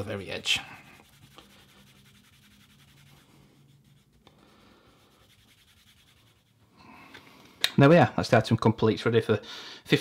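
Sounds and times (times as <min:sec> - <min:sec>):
cloth rubbing on leather: 0:00.0 - 0:04.2, 0:05.0 - 0:06.6.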